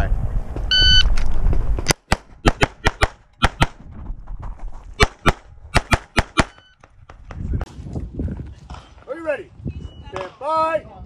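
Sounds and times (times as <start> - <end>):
pistol shots: 1.9 - 3.8, 5.0 - 6.6.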